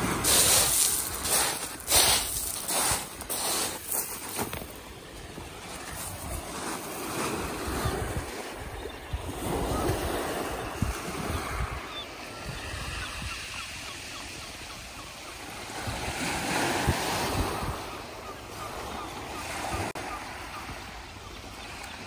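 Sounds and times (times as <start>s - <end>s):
waves washing on shingle beach: 0.0s - 22.0s
wind buffeting microphone: 4.5s - 13.6s.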